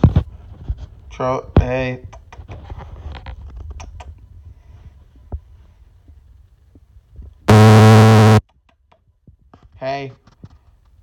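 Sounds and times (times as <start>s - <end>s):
loud low buzz: 7.5s - 8.4s.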